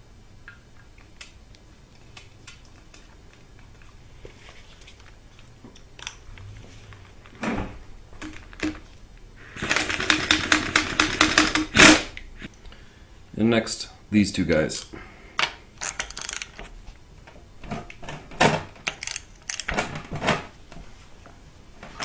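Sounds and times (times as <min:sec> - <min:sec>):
tools and parts being handled: 0:02.0 - 0:07.4, 0:14.7 - 0:20.9.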